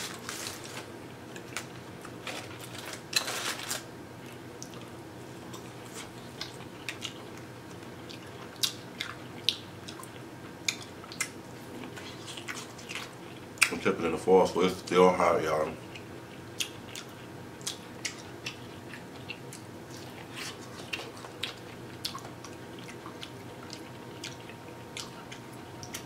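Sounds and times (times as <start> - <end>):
aluminium foil crinkling: 0.0 - 3.9.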